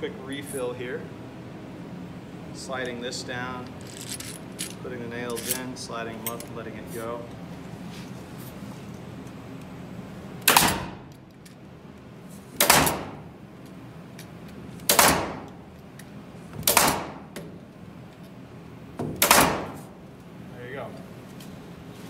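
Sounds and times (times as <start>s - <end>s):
pneumatic nailer firing: 10.4s - 11.1s, 12.6s - 13.3s, 14.8s - 15.6s, 16.6s - 17.5s, 19.0s - 20.0s.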